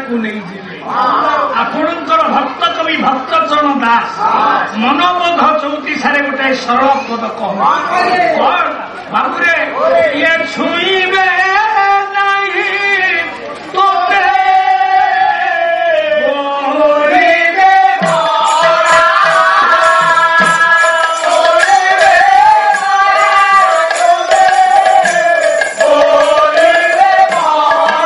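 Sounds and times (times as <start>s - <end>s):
men singing: 13.8s - 28.0s
barrel drum beat: 17.7s - 28.0s.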